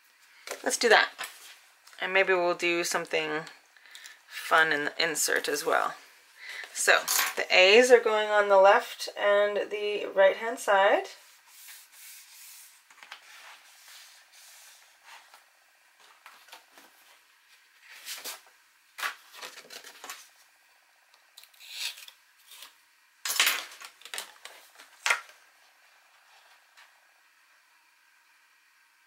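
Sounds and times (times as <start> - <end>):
paper sliding and rustling: 11.3 - 17.2, 17.8 - 20.3.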